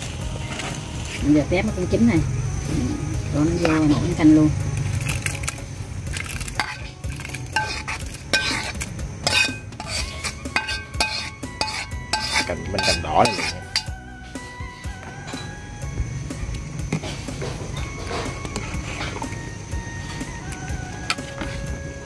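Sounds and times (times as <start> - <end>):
metal utensil scraping a pan: 6.1 - 14.0.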